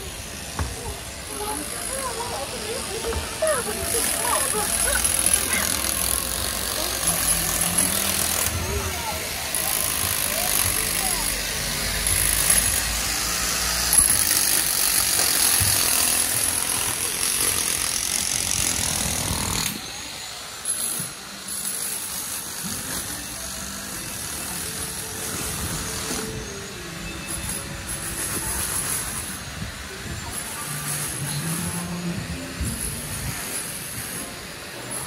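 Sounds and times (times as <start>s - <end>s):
traffic noise: 0.0s - 19.9s.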